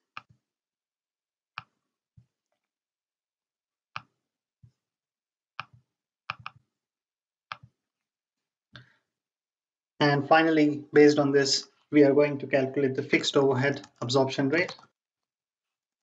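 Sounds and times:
mouse and keyboard clicks: 0:05.6 - 0:06.6.

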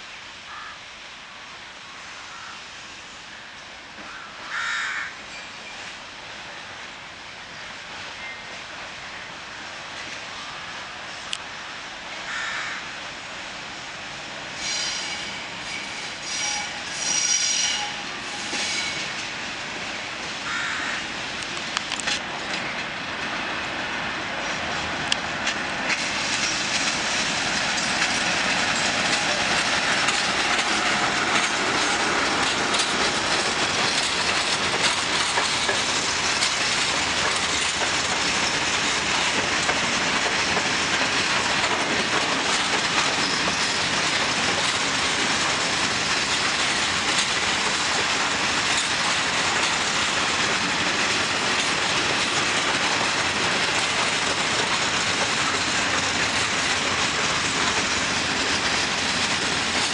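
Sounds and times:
freight train wheels clattering: 0:21.3 - 0:59.9.

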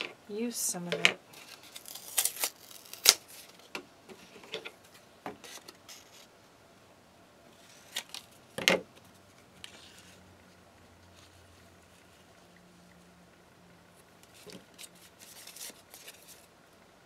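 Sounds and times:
paper rustling: 0:14.2 - 0:16.5.

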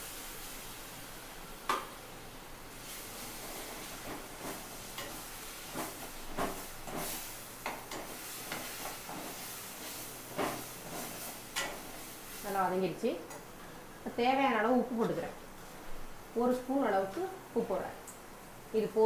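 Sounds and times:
sauce sizzling in a pan: 0:00.0 - 0:14.6.

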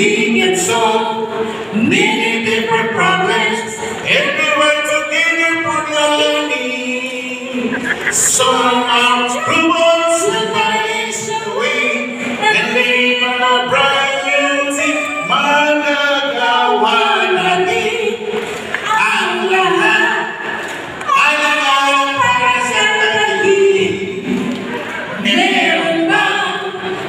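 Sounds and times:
man singing unaccompanied: 0:00.0 - 0:18.1.

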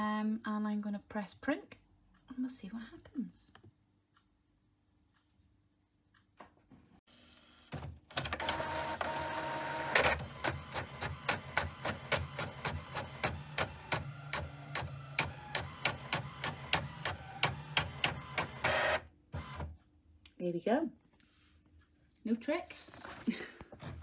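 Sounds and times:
printer whirring pulling page: 0:07.6 - 0:19.8
printer mechanical clicks: 0:07.7 - 0:19.8.

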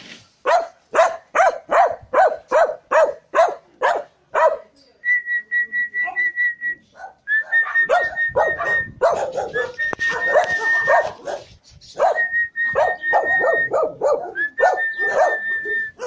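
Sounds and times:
puppy barking: 0:00.4 - 0:04.7, 0:06.9 - 0:16.0
high whistle-like tone: 0:05.2 - 0:09.0, 0:09.6 - 0:11.2, 0:11.9 - 0:16.0.

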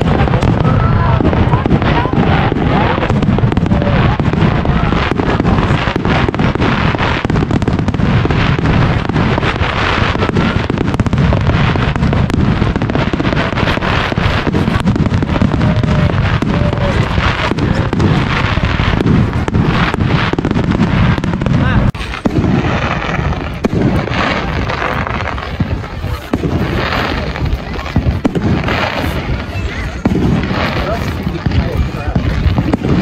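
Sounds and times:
fireworks bursting with bangs and crackles: 0:00.0 - 0:33.0.

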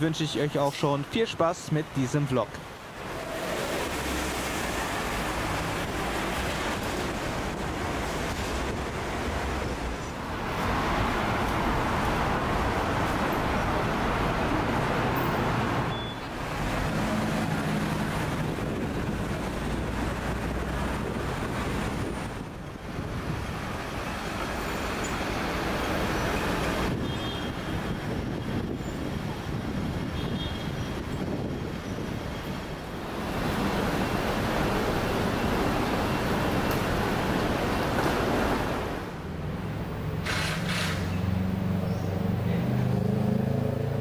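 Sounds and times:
passing vehicles: 0:00.0 - 0:44.0.

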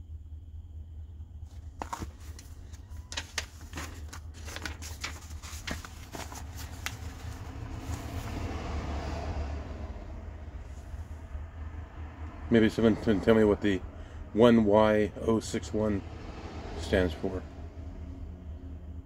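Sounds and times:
steady low hum: 0:00.0 - 0:19.0
paper pages flipping: 0:01.5 - 0:08.4.

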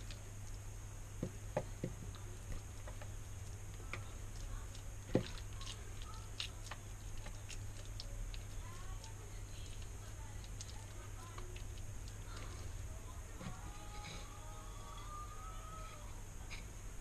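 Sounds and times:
low steady hum: 0:00.0 - 0:17.0
hands squelching moist mixture: 0:02.1 - 0:13.3.

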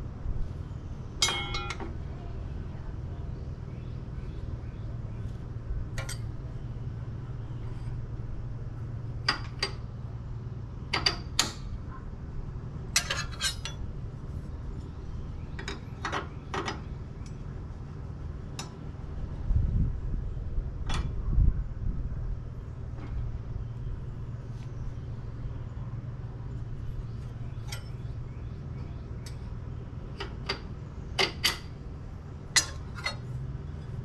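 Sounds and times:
metal blades clinking: 0:01.2 - 0:01.8, 0:13.0 - 0:13.8, 0:32.6 - 0:33.3.

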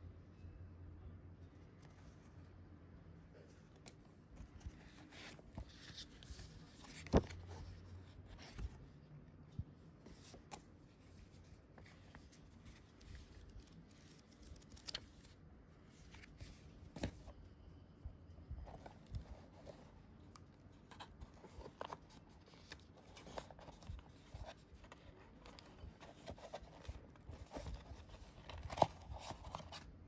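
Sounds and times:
paper rustling: 0:03.8 - 0:08.8, 0:10.0 - 0:17.4.

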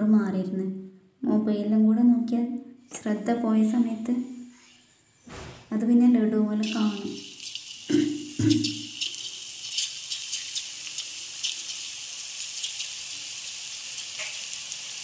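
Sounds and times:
batter sizzling in hot oil: 0:06.6 - 0:15.0
small crackles: 0:08.6 - 0:15.0.

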